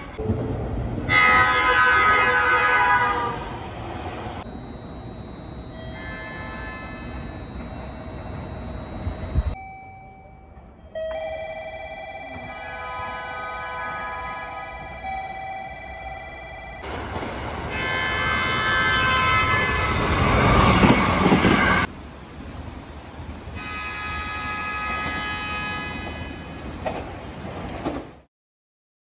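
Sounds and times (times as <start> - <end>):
train passing rumble: 0.0 - 4.9, 16.6 - 28.3
electric train horn: 1.0 - 3.7, 5.9 - 8.4, 12.3 - 15.1, 17.7 - 21.9, 23.6 - 26.5.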